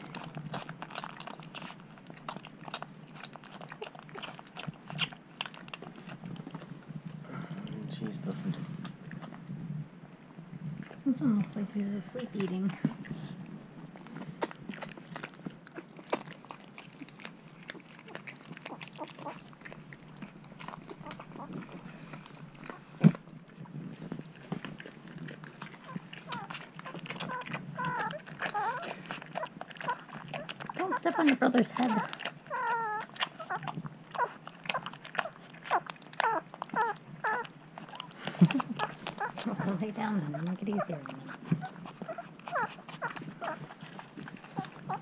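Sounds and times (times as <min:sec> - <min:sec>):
puppies suckling: 0:00.0 - 0:45.0.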